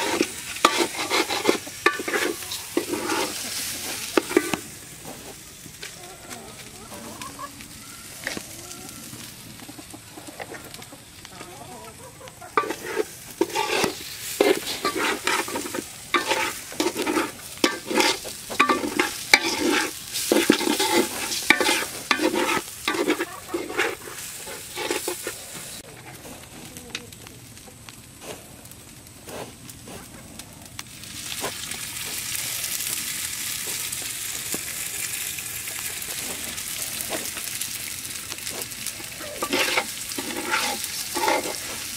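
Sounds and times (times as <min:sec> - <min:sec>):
metal spatula scraping pot: 0:00.0 - 0:04.6, 0:12.6 - 0:25.9, 0:39.1 - 0:41.9
rice sizzling: 0:00.0 - 0:41.9.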